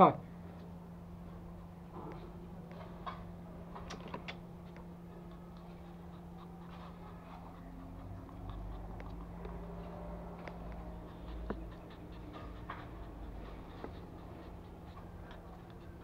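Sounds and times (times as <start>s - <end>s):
steady low hum: 0.0s - 16.0s
puppy pawing ticks and scrapes: 2.0s - 16.0s.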